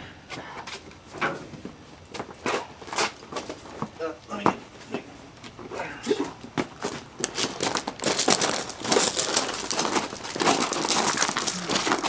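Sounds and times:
crinkling and rustling: 6.6s - 12.0s.

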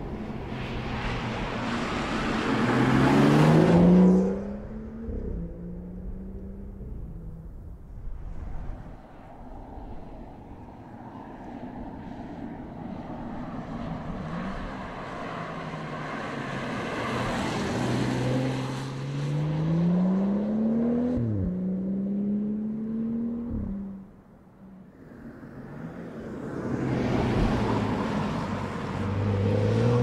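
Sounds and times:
car engine accelerating: 1.5s - 7.7s
tyre and wind rush: 7.0s - 15.8s.

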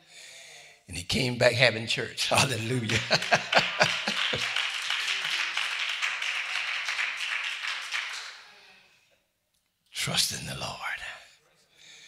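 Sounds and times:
congregation clapping: 2.3s - 8.6s.

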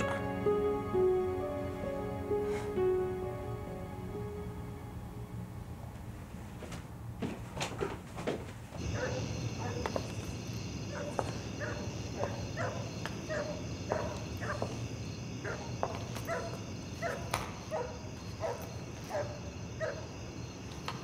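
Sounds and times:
dog barking: 8.8s - 10.0s, 10.9s - 14.8s, 15.4s - 20.1s.

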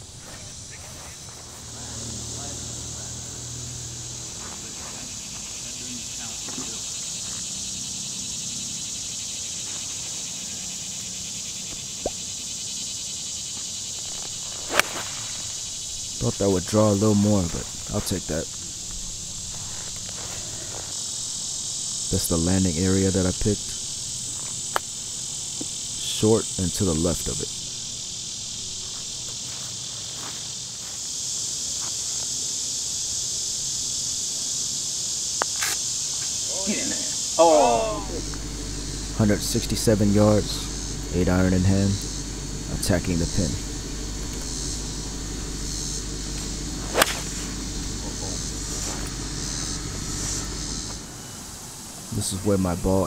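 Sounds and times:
high-pitched insect drone: 0.0s - 53.0s
putter striking golf ball: 38.0s - 51.0s.

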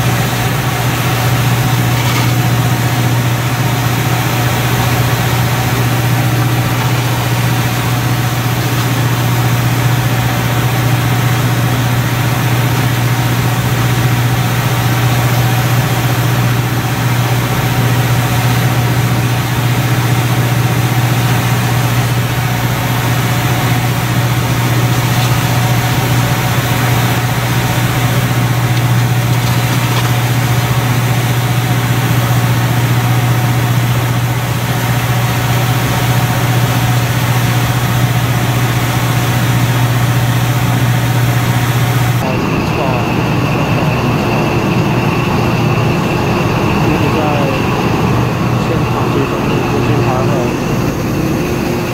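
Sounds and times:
water rushing: 0.0s - 32.6s
boat engine droning: 0.0s - 51.9s.

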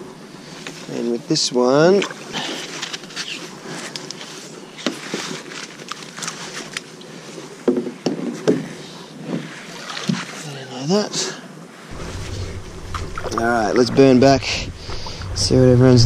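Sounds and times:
hands handling rope and float: 2.0s - 10.4s.

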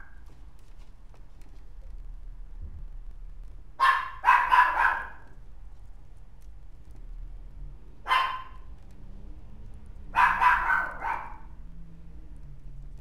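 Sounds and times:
puppy yipping: 3.8s - 5.3s, 8.1s - 8.6s, 10.2s - 11.5s.

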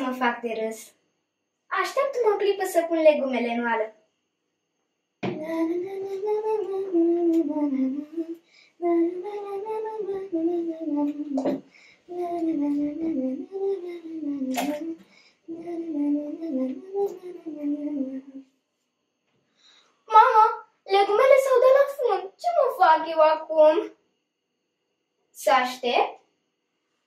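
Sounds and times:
girl singing: 0.0s - 0.8s, 1.7s - 3.9s, 5.2s - 18.5s, 20.1s - 23.9s
sharp knocks: 5.2s - 5.4s.

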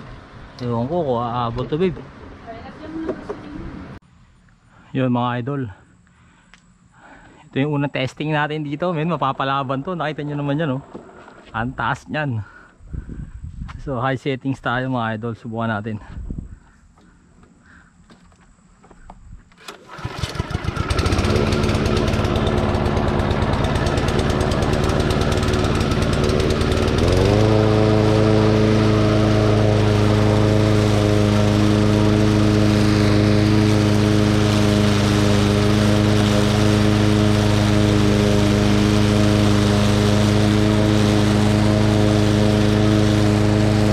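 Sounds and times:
lawn mower engine running: 19.6s - 43.9s.

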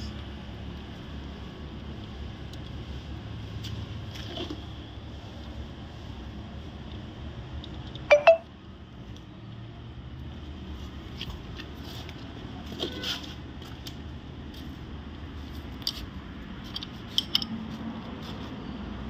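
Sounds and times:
light metallic clicks and clinks: 16.6s - 17.6s
spanner on sprocket bolt: 16.7s - 17.6s.

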